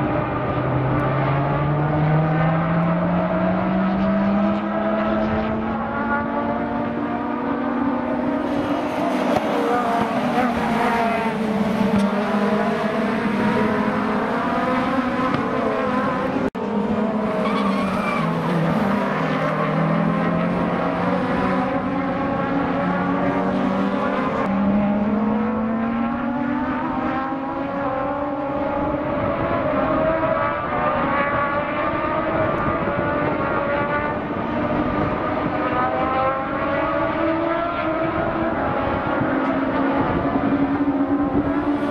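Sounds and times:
race car engines: 0.0 - 41.9
tyre squeal: 17.4 - 19.8.

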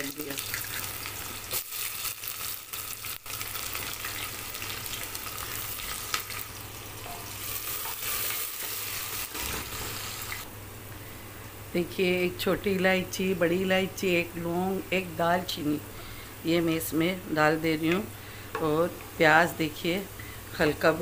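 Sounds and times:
onions sizzling in hot oil: 0.0 - 10.5.

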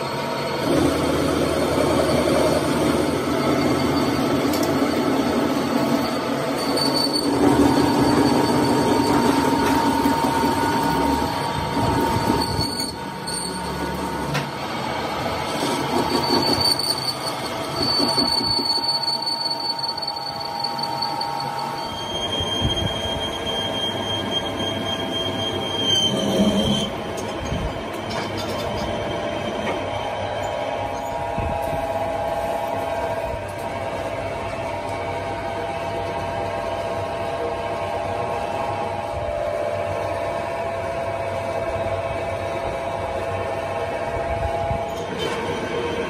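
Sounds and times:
metal lathe running: 0.0 - 46.0
cutting tool squealing: 5.8 - 14.0, 15.6 - 27.0.

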